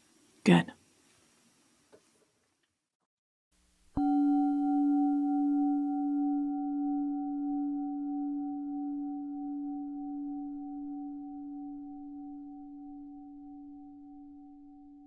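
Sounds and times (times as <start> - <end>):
singing bowl ringing: 4.0 - 15.0.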